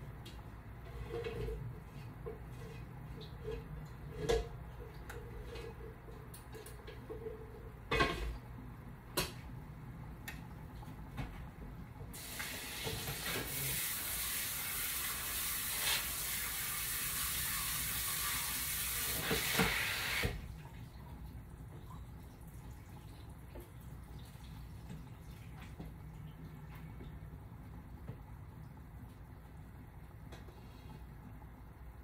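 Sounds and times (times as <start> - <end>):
kitchen tap running: 12.1 - 30.8.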